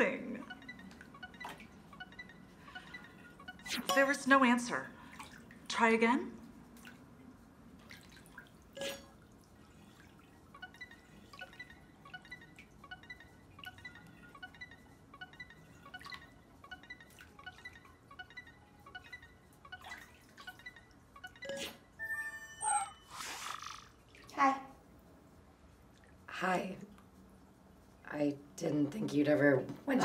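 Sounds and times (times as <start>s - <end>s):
video call ringing chime: 0.0s - 4.7s, 10.6s - 23.2s.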